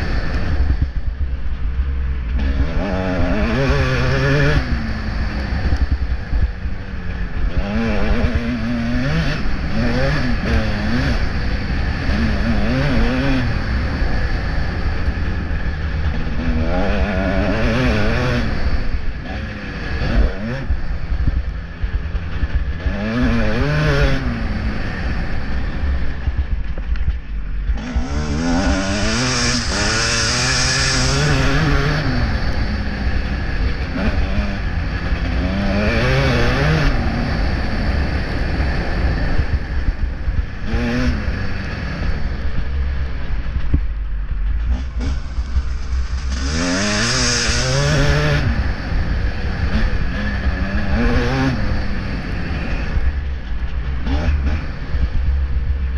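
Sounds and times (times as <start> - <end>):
motorcycle engine revving: 0.0 - 55.9
wind rumble on microphone: 0.0 - 55.9.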